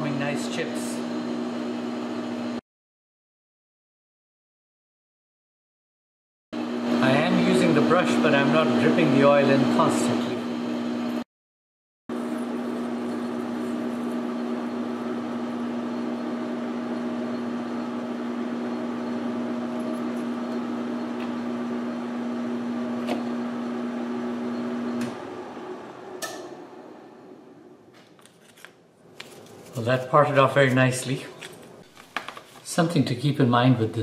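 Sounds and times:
lathe humming: 6.6 - 11.2, 12.1 - 27.7.

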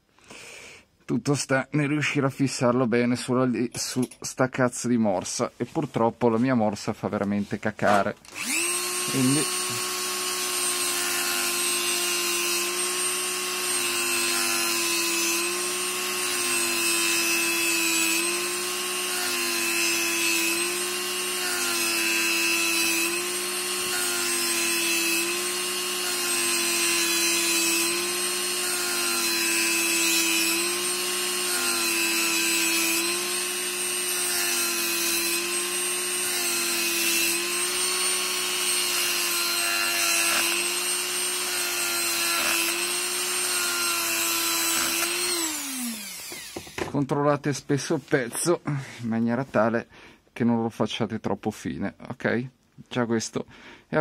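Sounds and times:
rotary tool grinding steel: 7.9 - 46.9
rotary tool winding down: 8.3 - 46.8.

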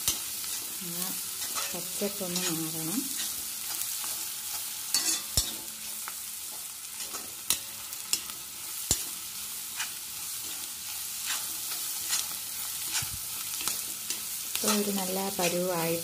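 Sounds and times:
metal spatula scraping pan: 0.0 - 16.0
vegetables sizzling in oil: 0.0 - 16.0
spatula clacking against pan: 4.9 - 5.6.

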